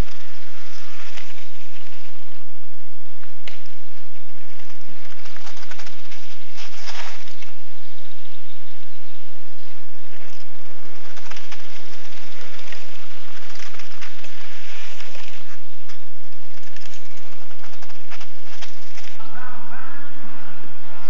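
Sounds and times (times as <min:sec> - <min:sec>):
irregular clicks and crackles: 0:00.0 - 0:02.3, 0:03.2 - 0:07.9, 0:10.0 - 0:19.2
steady rushing hiss: 0:00.0 - 0:08.0, 0:09.2 - 0:19.3.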